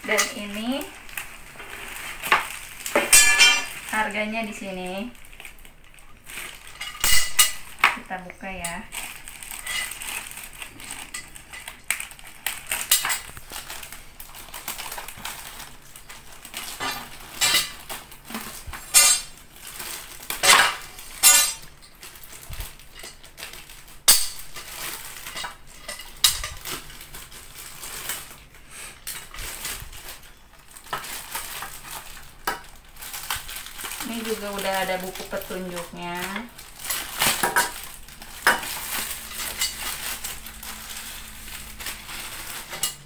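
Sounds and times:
plastic wrapping crinkling: 0.0s - 43.0s
scissors cutting plastic: 29.0s - 43.0s.

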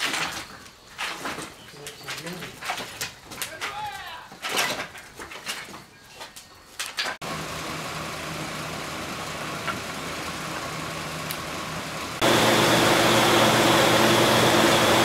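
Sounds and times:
electric fan humming: 7.2s - 15.0s.

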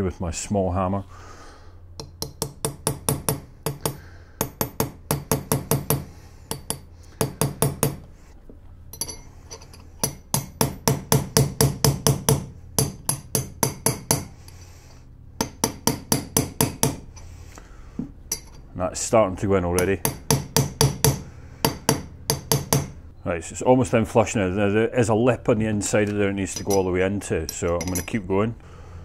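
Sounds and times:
hammer tapping metal: 2.0s - 8.1s, 8.9s - 14.4s, 15.4s - 17.1s, 18.3s - 18.6s, 19.8s - 23.0s.

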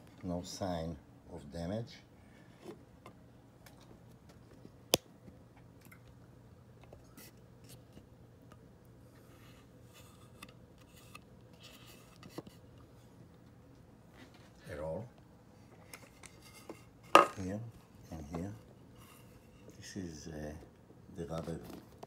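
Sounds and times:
faint rubbing and rustling: 15.6s - 20.3s.

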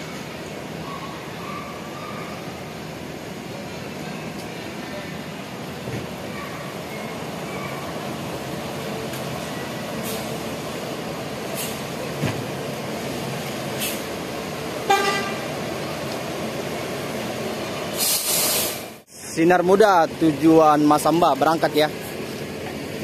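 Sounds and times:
diesel bus engines running: 0.0s - 23.0s
brief hiss: 11.5s - 11.8s, 13.8s - 14.1s, 18.0s - 19.0s
bus horn toot: 14.8s - 15.6s.

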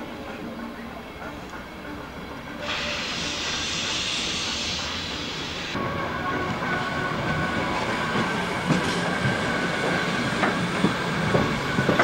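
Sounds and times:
train rolling noise: 0.0s - 12.0s
train wheels clicking on rail joints: 7.3s - 12.0s.

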